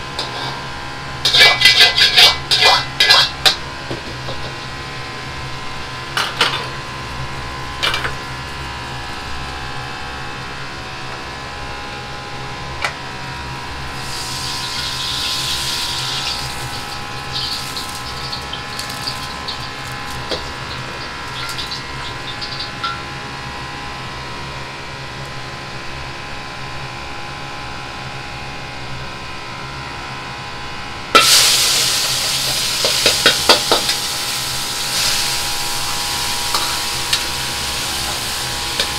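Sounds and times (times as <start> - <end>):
sizzling in wok: 0.0 - 9.3, 13.6 - 23.4, 31.1 - 38.9
kitchen hum: 0.0 - 10.3, 13.4 - 24.2, 31.0 - 38.9
utensils clattering against wok: 1.3 - 4.6, 16.1 - 23.0, 31.2 - 34.1, 36.4 - 38.9.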